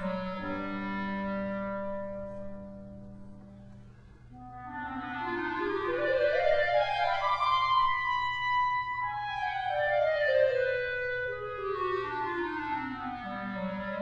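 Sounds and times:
steady low hum: 0:00.0 - 0:09.5.

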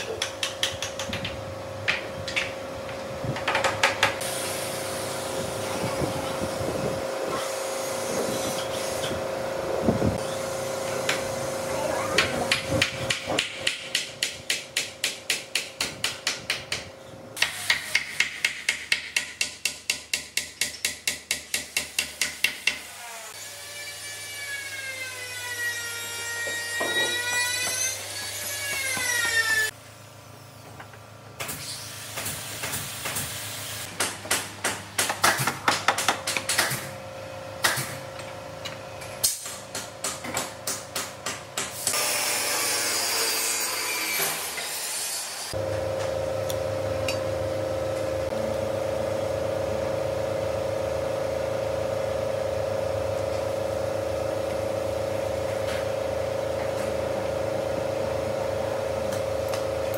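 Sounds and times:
steady hum: 0:45.5 - 0:59.9.

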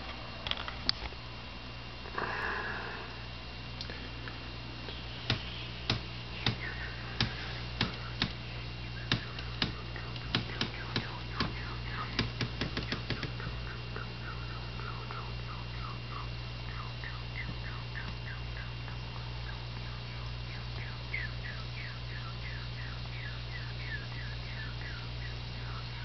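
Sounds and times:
aquarium equipment humming: 0:00.0 - 0:26.0
sharp clicks: 0:05.3 - 0:08.4, 0:09.0 - 0:14.1
faint chirp-like ticks: 0:09.0 - 0:26.0.

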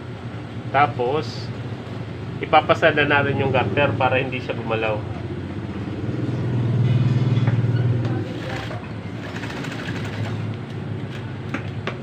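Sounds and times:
sewing machine stitching: 0:08.3 - 0:10.5.

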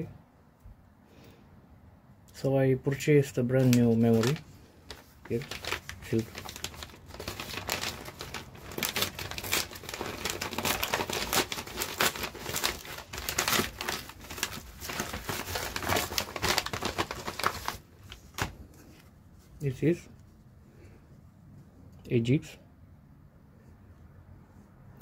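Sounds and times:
paper mailer crinkling: 0:03.4 - 0:19.0.

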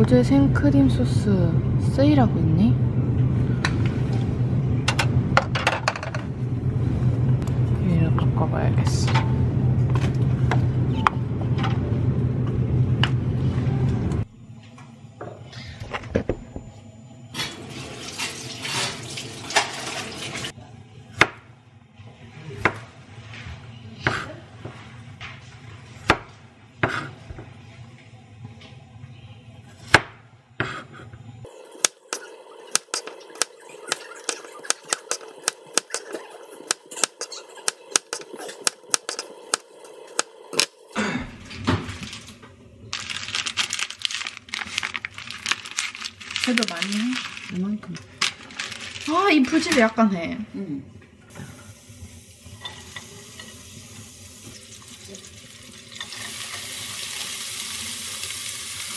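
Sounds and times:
knife chopping on plastic board: 0:32.8 - 0:39.6.

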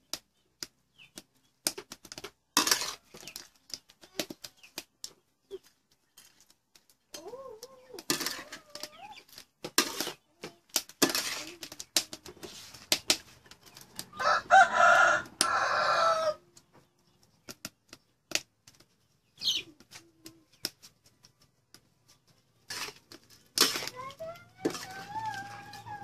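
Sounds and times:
utensils scraping a steel wok: 0:02.6 - 0:03.4, 0:08.0 - 0:13.8, 0:22.6 - 0:26.0
chicken calling loudly: 0:24.4 - 0:26.0.

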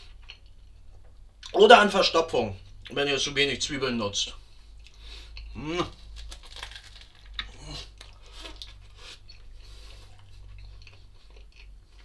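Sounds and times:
person chewing burger: 0:04.8 - 0:12.0.

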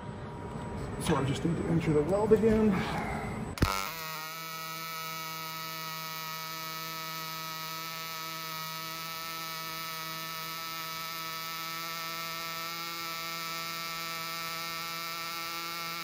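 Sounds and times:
welding arc buzzing: 0:03.6 - 0:16.0.

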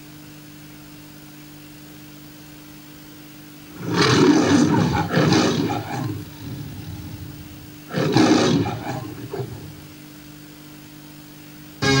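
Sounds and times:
lion roaring: 0:03.7 - 0:10.0.

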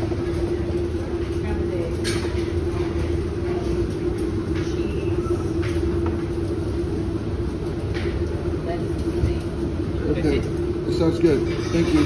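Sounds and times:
low machinery hum and rumble: 0:00.0 - 0:12.0.

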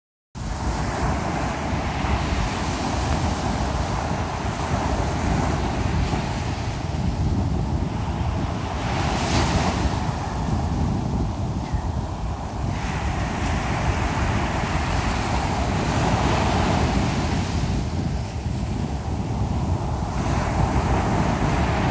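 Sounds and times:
surf washing up beach: 0:00.4 - 0:21.9
wind buffeting microphone: 0:00.4 - 0:21.9.

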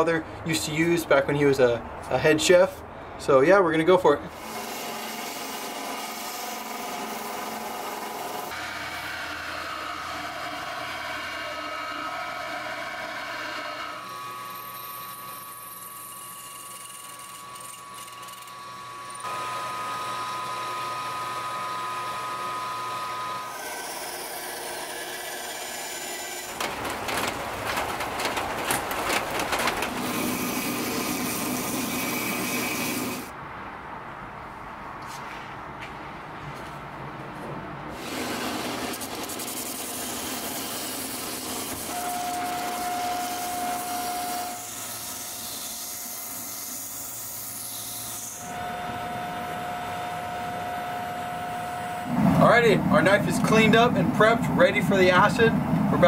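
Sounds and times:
belt grinder grinding steel: 0:04.3 - 0:33.3, 0:38.0 - 0:52.1
belt sander sanding wood: 0:04.3 - 0:33.3, 0:38.0 - 0:52.0
drill press drilling: 0:04.4 - 0:26.6, 0:38.0 - 0:45.0.

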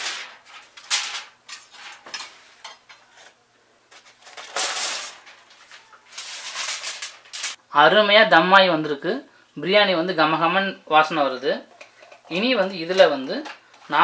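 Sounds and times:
aluminium foil crinkling: 0:00.0 - 0:02.3, 0:03.0 - 0:07.6.

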